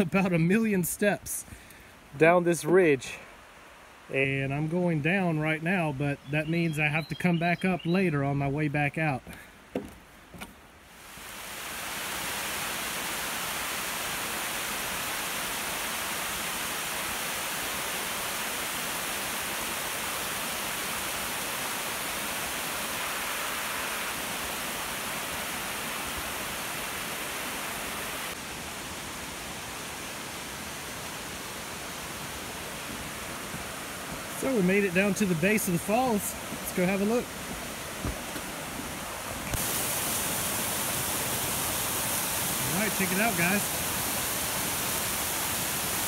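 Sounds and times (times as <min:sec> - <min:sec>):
waterfall rushing over rock: 0:10.9 - 0:46.0.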